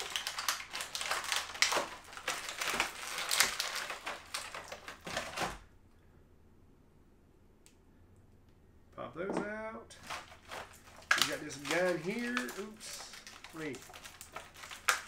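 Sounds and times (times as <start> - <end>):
plastic packaging crinkling: 0.0 - 5.7, 10.0 - 15.0.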